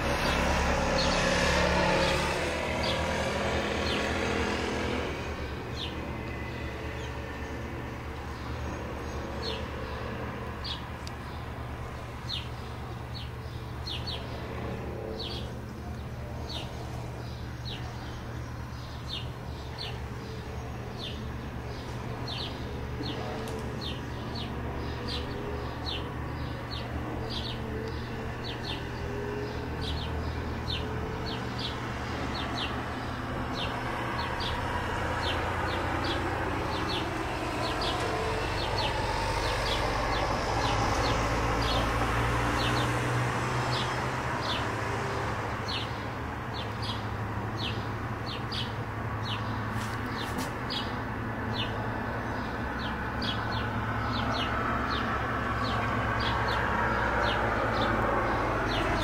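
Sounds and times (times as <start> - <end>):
turboprop engines droning overhead: 0.0 - 59.0
bird chirping: 5.4 - 43.0.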